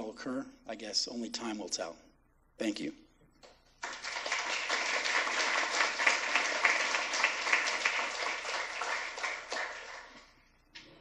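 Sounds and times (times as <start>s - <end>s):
audience clapping: 3.8s - 10.4s.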